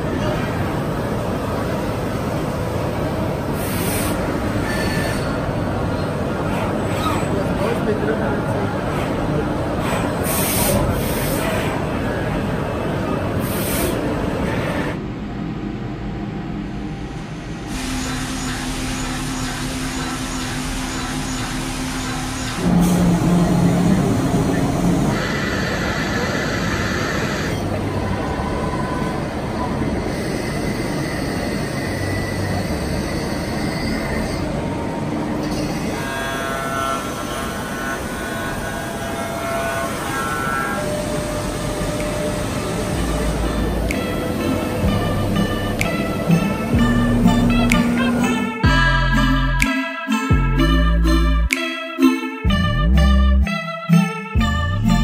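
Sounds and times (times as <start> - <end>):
spindle milling hum: 14.1 - 49.6
machining noise: 17.4 - 51.4.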